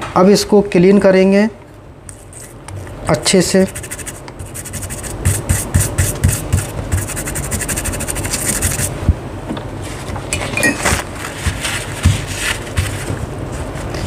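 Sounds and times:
rapid scrubbing strokes: 3.6 - 9.0, 11.3 - 13.8.

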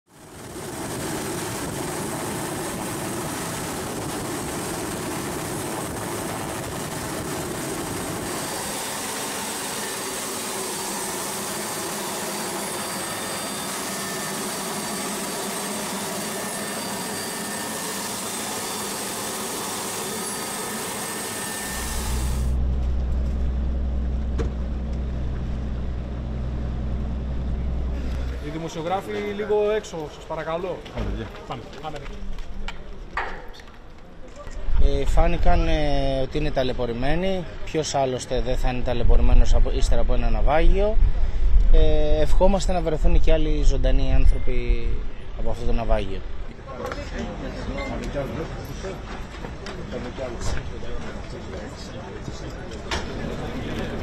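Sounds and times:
helicopter cabin noise: 0.1 - 29.6, 45.6 - 54.0
high whining turbine: 0.1 - 29.6
boat engines rumbling: 21.9 - 29.4.

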